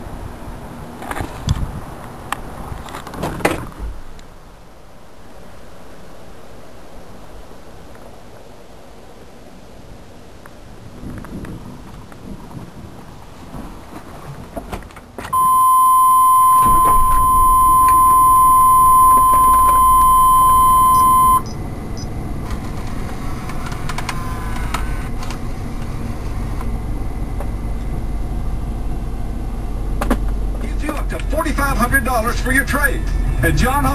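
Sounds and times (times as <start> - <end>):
truck engine rumble: 10.8 - 33.9
electronic beep tone: 15.3 - 22.1.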